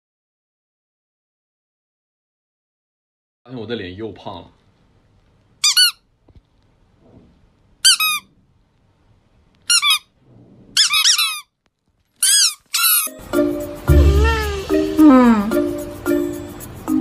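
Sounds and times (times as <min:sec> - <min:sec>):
squeaky toy squeaking: 0:05.6 - 0:06.0, 0:07.8 - 0:08.3, 0:09.7 - 0:10.1, 0:10.8 - 0:11.6, 0:12.2 - 0:13.2, 0:13.9 - 0:15.5.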